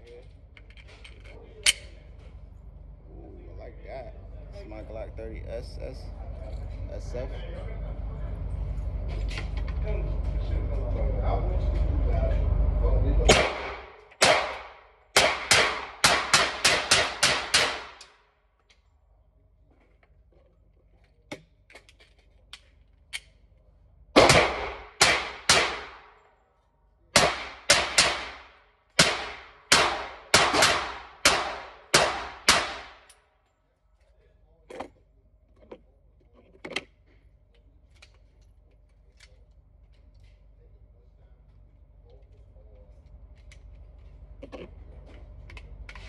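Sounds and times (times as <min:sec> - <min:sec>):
pistol shots: 0:13.3 - 0:18.1, 0:24.2 - 0:26.2, 0:27.2 - 0:33.1.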